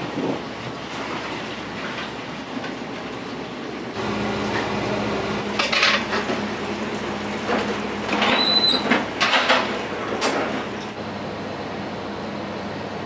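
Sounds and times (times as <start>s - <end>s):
dishes clattering: 5.6s - 6.4s.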